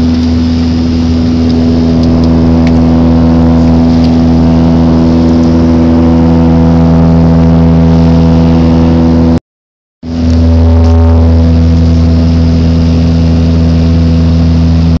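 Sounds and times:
propeller plane cabin drone: 0.0s - 9.4s, 10.0s - 15.0s.

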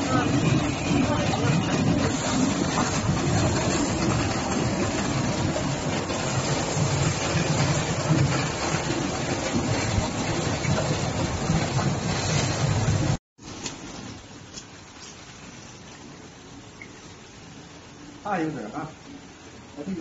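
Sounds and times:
washing machine drum rumbling: 0.0s - 13.2s.

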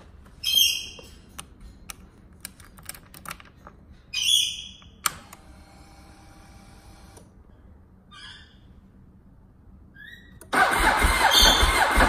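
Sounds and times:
fuel pump electric whir: 10.5s - 12.0s.

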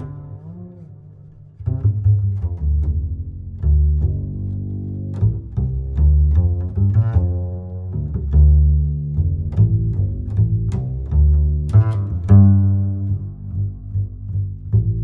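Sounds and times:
low bass notes: 0.0s - 15.0s.

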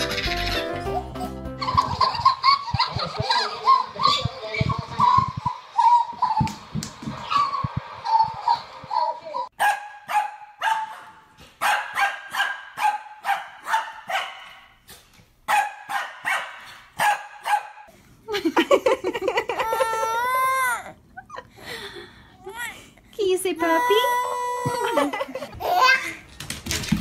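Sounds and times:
small dog barking: 9.6s - 14.6s, 15.5s - 17.8s
baby crying: 19.5s - 21.0s, 23.6s - 26.1s.

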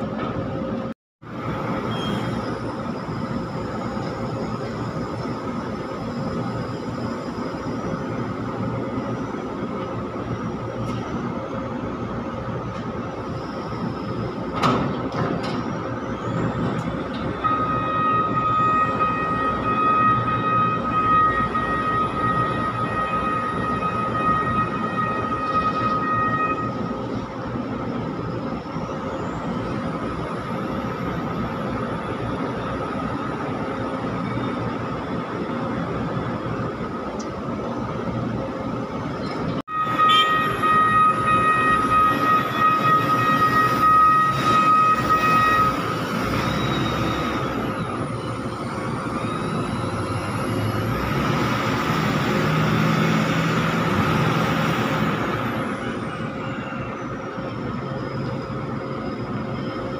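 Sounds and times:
hydraulic high whine: 0.0s - 59.9s
diesel engine running: 40.6s - 59.9s.

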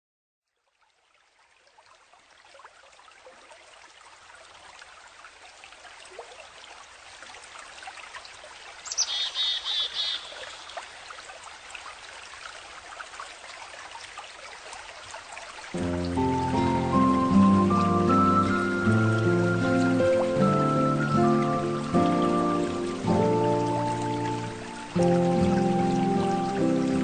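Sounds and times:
stream trickling: 0.4s - 27.0s
bird trilling: 8.9s - 10.6s
faint bird chirps: 8.9s - 10.8s.

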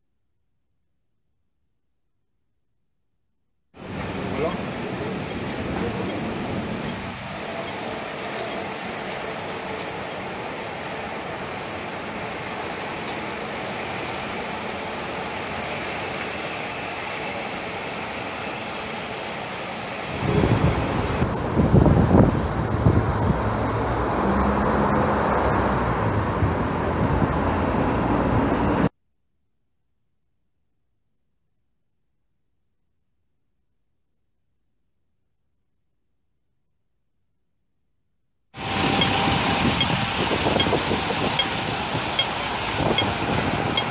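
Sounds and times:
high steady whine: 3.8s - 22.8s, 38.6s - 43.9s
traffic hum: 20.2s - 28.9s, 38.6s - 43.9s.

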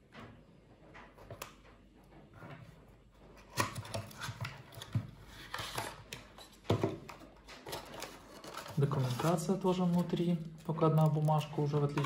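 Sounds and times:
cardboard and paper rustling: 2.6s - 12.0s.

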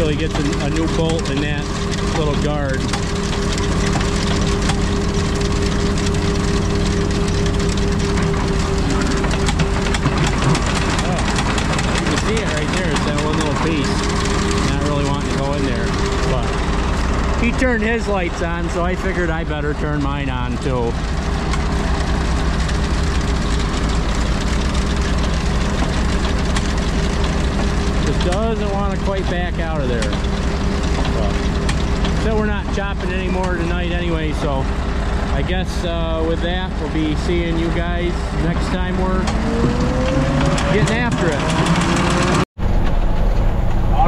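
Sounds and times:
diesel engine idling: 0.0s - 44.0s
humming tone: 1.6s - 12.9s.

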